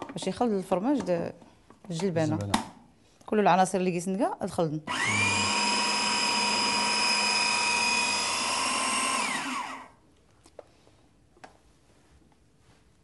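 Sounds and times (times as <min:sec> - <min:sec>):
food processor motor whining: 0:04.9 - 0:10.0.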